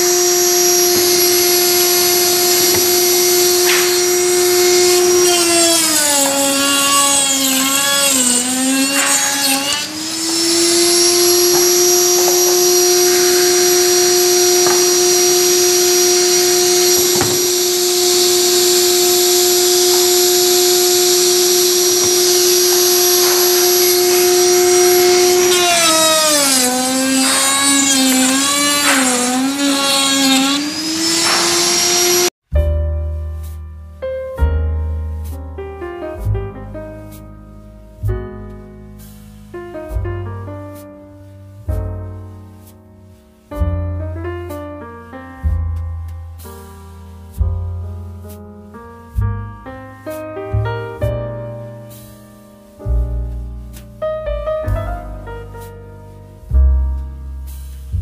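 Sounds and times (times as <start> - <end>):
power tool motor whining: 0.0 - 32.4.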